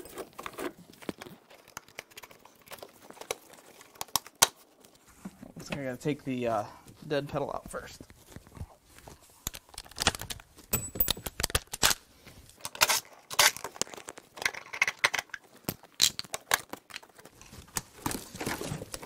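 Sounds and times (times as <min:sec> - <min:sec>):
small metal parts clattering: 0:10.7 - 0:11.6.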